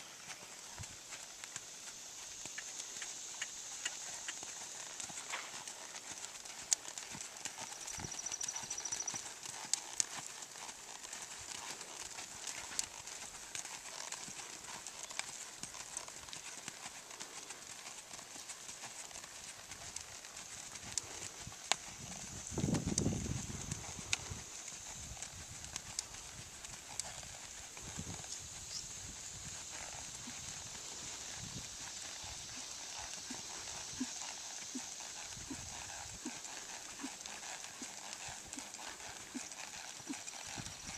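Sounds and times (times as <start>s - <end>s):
steady high hiss: 0.0s - 6.4s, 28.2s - 37.0s
hoofbeats on sand: 0.0s - 40.9s.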